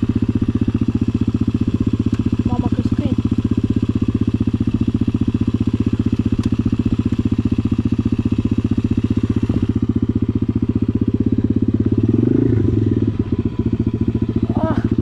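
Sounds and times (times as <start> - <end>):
motorbike engine running at low revs: 0.0 - 15.0.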